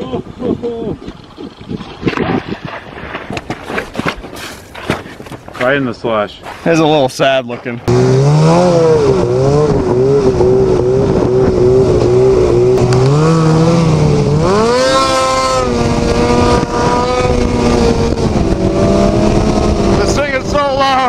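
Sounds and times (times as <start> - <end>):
snowmobile engine running: 7.9 - 21.0.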